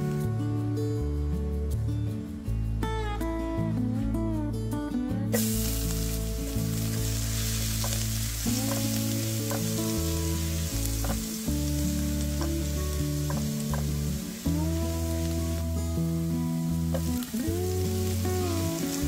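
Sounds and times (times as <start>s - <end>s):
guitar background music: 0.0s - 19.0s
garlic sizzling in hot oil: 5.4s - 19.0s.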